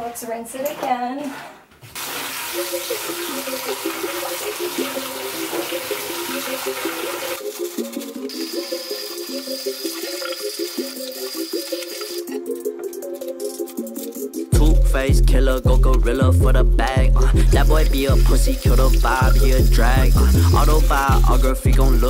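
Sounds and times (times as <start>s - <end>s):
clothes rinsed by hand in water: 1.9s - 12.3s
water running from bathtub tap: 2.0s - 12.3s, 17.3s - 22.0s
background music: 2.0s - 22.0s.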